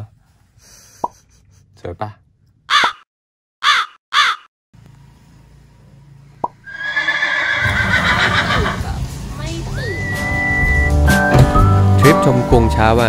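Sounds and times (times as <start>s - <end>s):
crow caws: 2.7s - 3.0s, 3.6s - 4.5s
light music: 8.7s - 13.0s.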